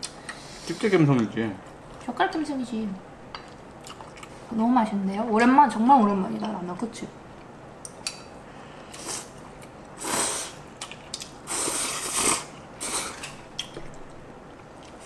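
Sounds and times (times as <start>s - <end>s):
people slurping noodles: 11.5s - 13.3s.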